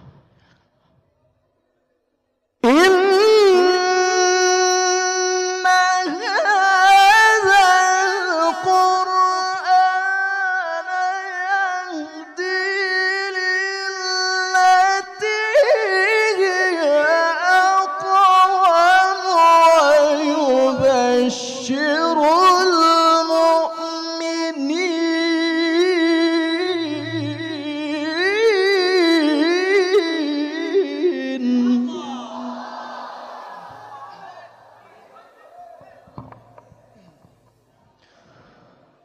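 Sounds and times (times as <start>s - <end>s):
man chanting recitation: 2.6s - 32.7s.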